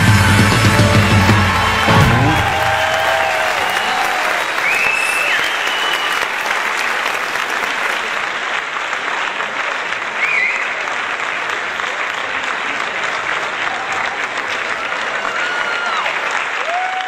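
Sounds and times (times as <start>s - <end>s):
audience applauding: 0.0s - 17.0s
short whistle: 4.6s - 6.3s.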